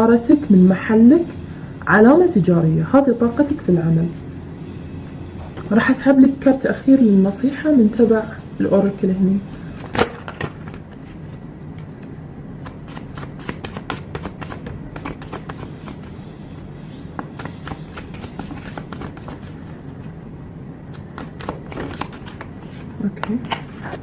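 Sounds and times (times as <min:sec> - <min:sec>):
cards being shuffled: 0:09.7 - 0:11.4, 0:12.6 - 0:16.3, 0:17.2 - 0:19.8, 0:20.9 - 0:24.0.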